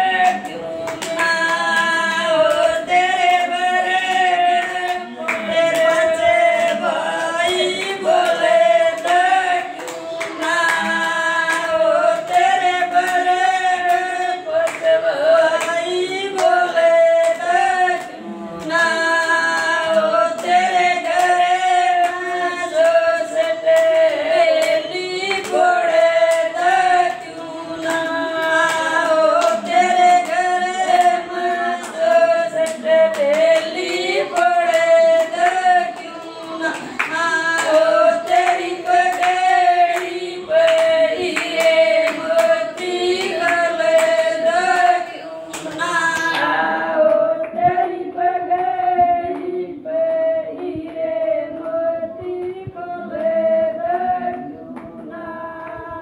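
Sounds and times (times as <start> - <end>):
hand clapping: 0.0 - 56.0
women singing together: 0.0 - 56.0.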